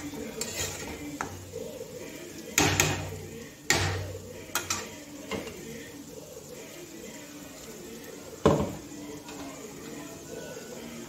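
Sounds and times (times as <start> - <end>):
metal spatula knocking on pan: 2.6 - 3.1.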